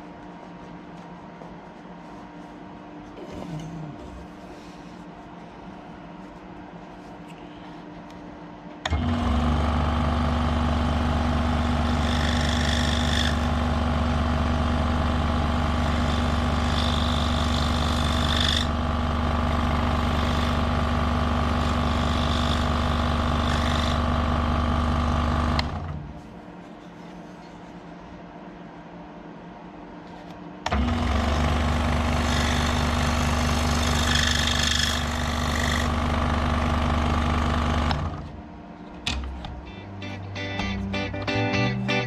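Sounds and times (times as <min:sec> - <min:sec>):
scroll saw cutting: 0:11.0 - 0:18.8, 0:19.4 - 0:24.6, 0:31.0 - 0:36.0.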